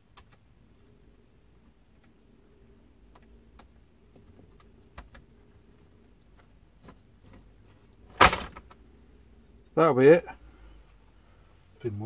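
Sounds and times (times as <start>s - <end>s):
small clicks and taps: 0.0s - 0.5s, 3.0s - 5.3s.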